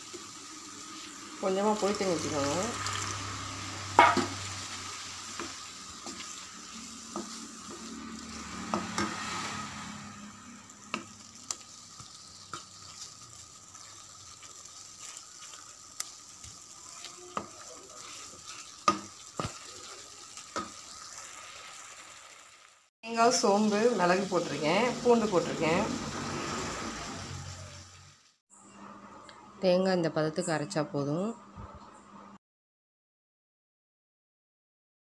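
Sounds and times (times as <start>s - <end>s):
masala sizzling in pan: 0.0s - 28.4s
wooden spatula scraping: 4.0s - 10.2s, 10.8s - 21.3s.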